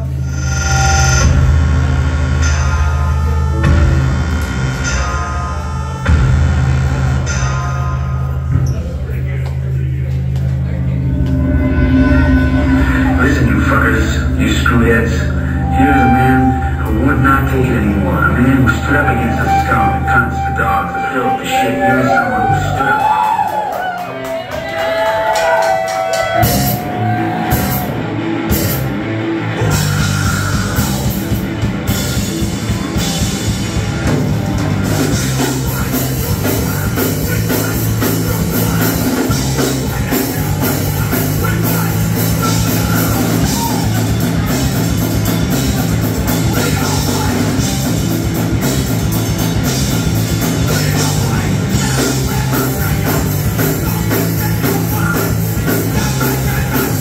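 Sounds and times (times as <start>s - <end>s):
live rock band playing: 0.0s - 8.7s, 9.5s - 57.0s
held guitar note: 10.4s - 23.2s.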